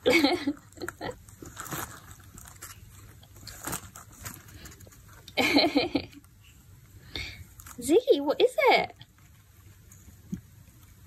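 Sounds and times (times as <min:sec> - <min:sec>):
cat rustling in cardboard box: 0:00.6 - 0:05.3.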